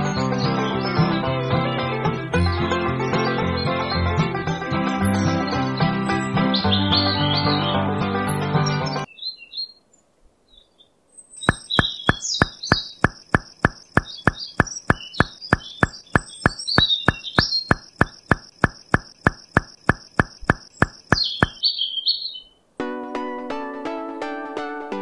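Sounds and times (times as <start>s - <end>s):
birds chirping: 4.9s - 7.9s, 8.5s - 22.6s
pebbles knocking: 11.5s - 21.6s.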